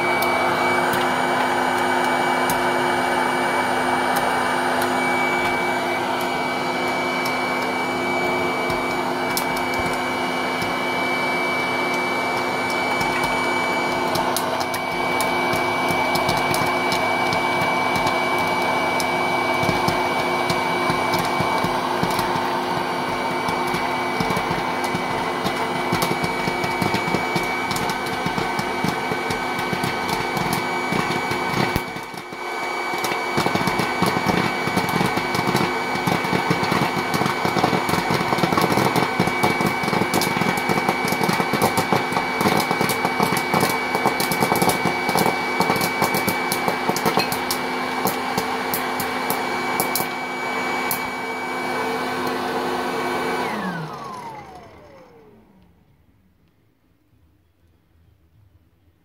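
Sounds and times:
popcorn kernels popping: 0.0s - 50.2s
popcorn maker motor hum: 0.0s - 55.8s.

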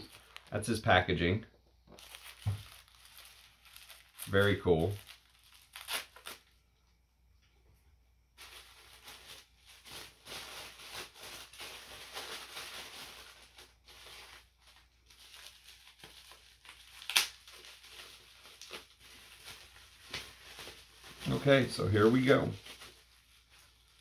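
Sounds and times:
paper rustling and crinkling: 0.0s - 0.5s, 1.9s - 6.5s, 8.4s - 24.0s
paper tearing: 3.9s - 6.4s.

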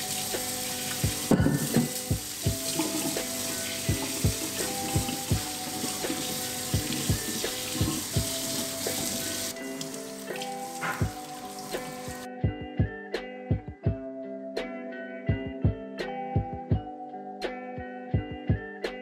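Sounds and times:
background music with beat: 0.0s - 19.0s
tap running into metal sink: 0.9s - 2.1s.

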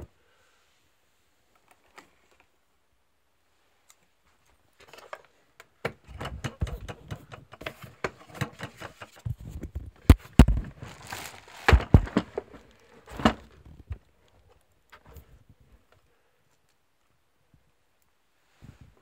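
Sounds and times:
plastic tray clicking and rattling: 5.8s - 9.2s
heavy thumps: 10.0s - 14.0s.

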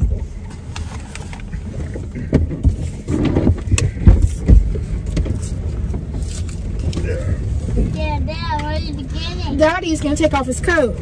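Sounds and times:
dull knocks: 2.1s - 5.4s.

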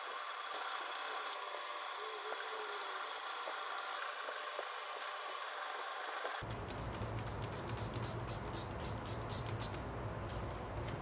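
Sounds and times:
spray bottle hissing sprays: 5.6s - 9.8s.

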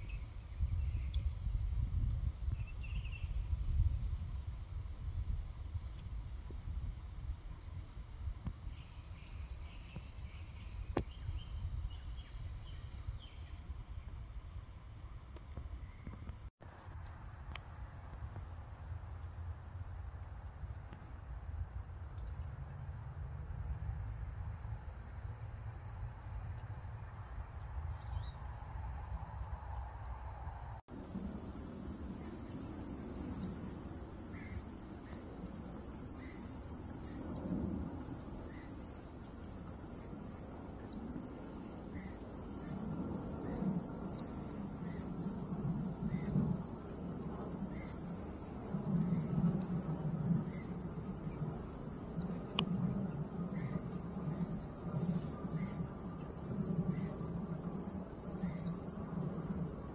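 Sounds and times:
high insect drone: 0.1s - 59.9s.

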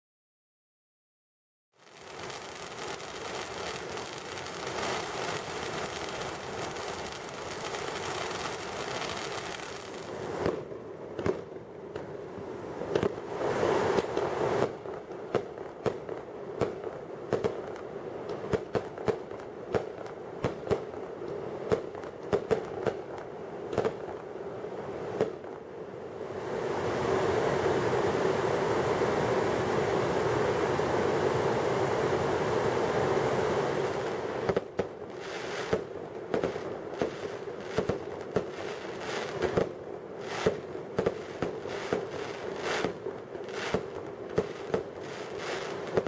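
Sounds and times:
firework fountain hissing: 1.8s - 11.4s, 12.8s - 14.8s, 26.3s - 46.0s.

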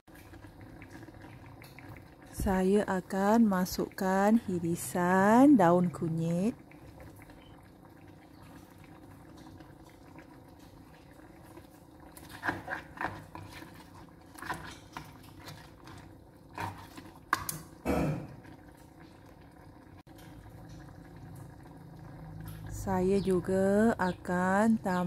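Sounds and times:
gravy simmering in a wok: 0.1s - 25.0s
spatula scraping and knocking pan: 12.2s - 17.5s.

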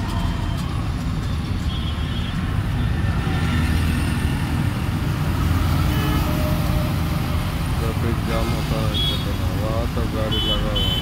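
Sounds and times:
trucks passing on road: 0.0s - 11.0s.

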